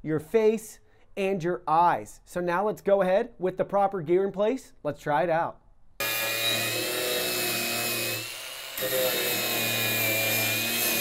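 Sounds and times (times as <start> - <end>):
angle grinder grinding metal: 6.0 - 11.0.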